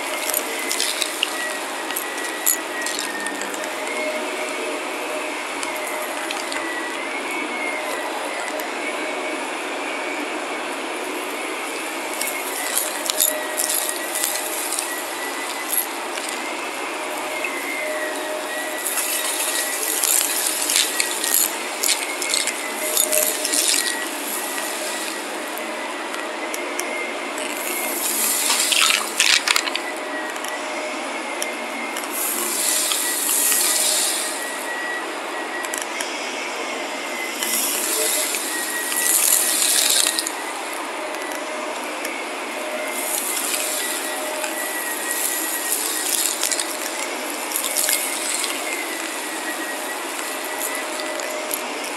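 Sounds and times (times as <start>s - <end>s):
vacuum cleaner motor drone: 0.0s - 51.9s.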